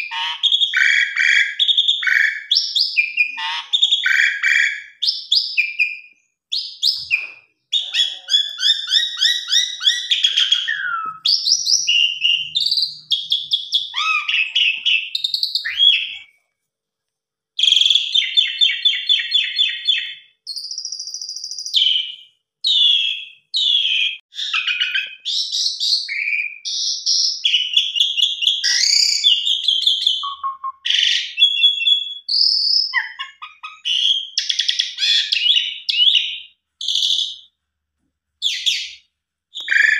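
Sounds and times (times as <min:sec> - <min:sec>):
starling singing trills and whistles: 0:00.0 - 0:16.3, 0:17.6 - 0:37.5, 0:38.4 - 0:39.9.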